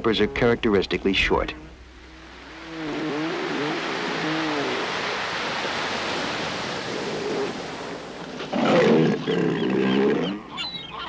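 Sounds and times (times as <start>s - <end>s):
surf washing on beach: 1.2s - 9.3s
elephant seal calling: 1.6s - 5.7s, 8.5s - 11.0s.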